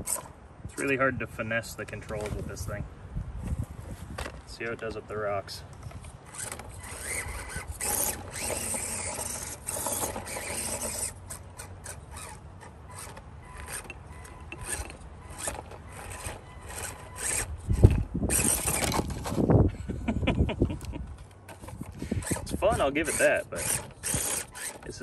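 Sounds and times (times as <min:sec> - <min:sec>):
rc car motor whirring: 0:00.0 - 0:01.0, 0:05.8 - 0:19.6, 0:21.4 - 0:25.0
tyres scraping over stones: 0:03.6 - 0:19.6, 0:21.4 - 0:25.0.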